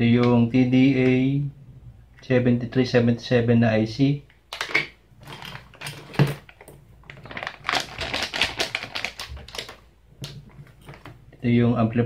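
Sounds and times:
plastic bag crinkling: 5.2 - 11.2.

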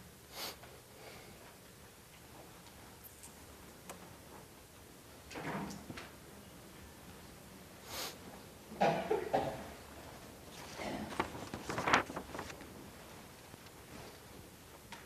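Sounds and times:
people coughing: 8.7 - 9.8.

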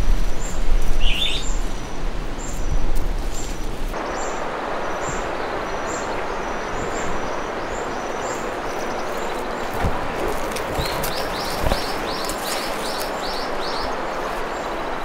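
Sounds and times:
wind rumble on microphone: 0.0 - 15.0
stream water rushing: 3.9 - 15.0.

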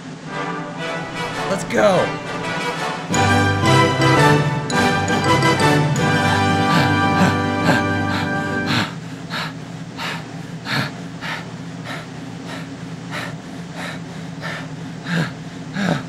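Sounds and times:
person panting: 1.0 - 2.6, 6.1 - 16.0.

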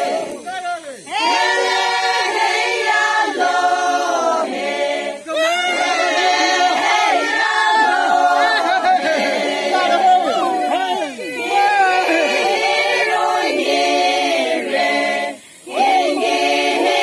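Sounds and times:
women singing together: 0.0 - 17.0.

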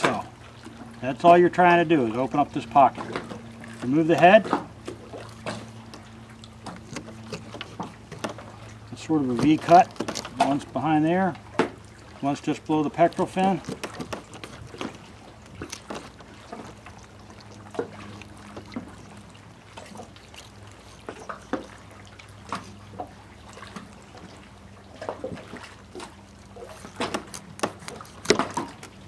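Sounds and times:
low steady hum: 0.0 - 29.0
knife crunching through fish bone: 6.7 - 8.4, 26.8 - 29.0.

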